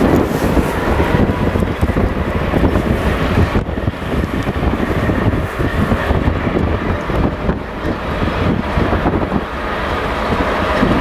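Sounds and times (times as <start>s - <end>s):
diesel locomotive engine rumble: 0.0s - 11.0s.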